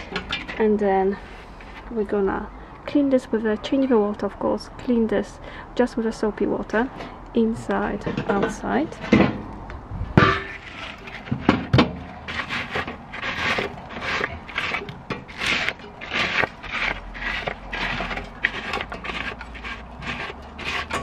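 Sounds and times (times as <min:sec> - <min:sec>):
scraping ash in metal bowl: 0:10.3 - 0:21.0.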